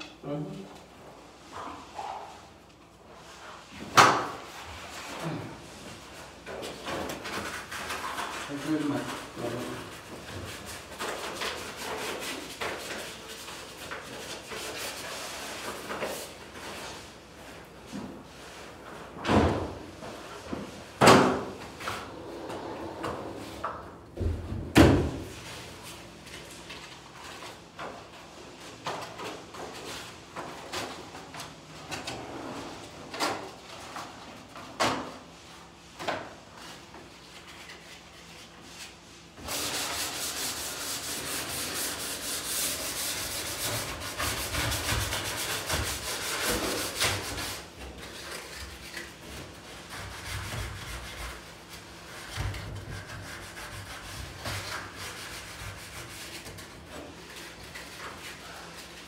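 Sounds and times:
hand sanding a wall: 6.6s - 17.6s, 36.5s - 59.0s.

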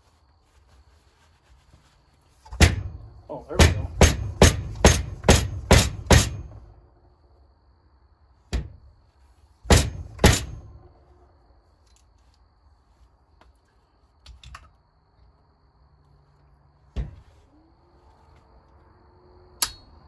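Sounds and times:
metal-on-metal knocks: 2.5s - 6.7s, 9.7s - 10.8s.

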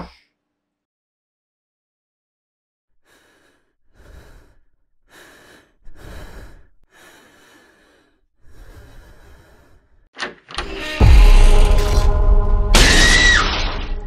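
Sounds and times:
man breathing heavily: 3.0s - 10.1s.

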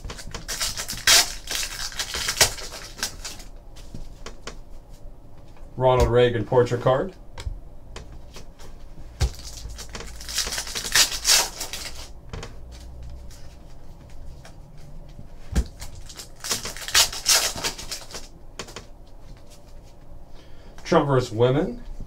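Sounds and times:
foil wrappers crinkling and tearing: 0.0s - 3.5s, 9.2s - 12.2s, 15.6s - 18.3s.

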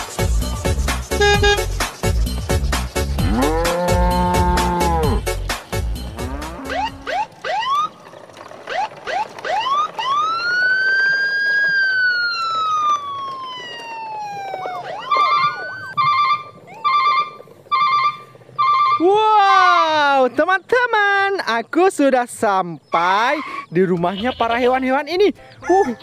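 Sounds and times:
electronic siren wail: 6.2s - 19.9s
warbling electronic beep: 14.2s - 19.0s.

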